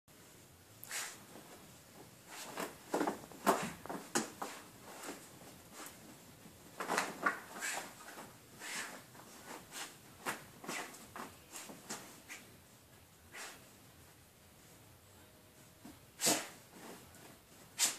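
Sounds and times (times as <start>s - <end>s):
dog digging in fabric bedding: 6.8s - 12.5s, 16.2s - 17.9s.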